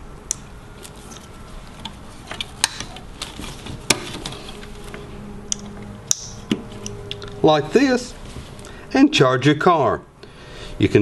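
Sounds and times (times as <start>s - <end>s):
faint low hum: 0.0s - 11.0s
connectors clicking and rattling: 0.8s - 7.4s.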